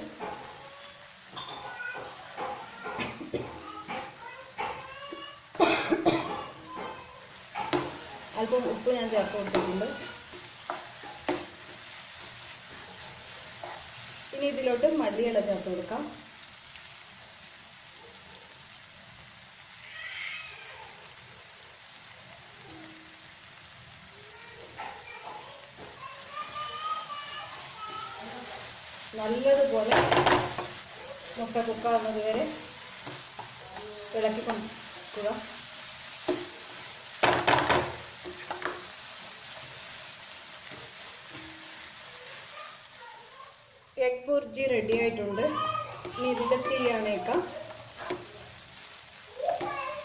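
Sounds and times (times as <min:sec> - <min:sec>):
eggs sizzling in a pan: 0:00.0 - 0:50.0
spatula scraping a pan: 0:06.3 - 0:15.5.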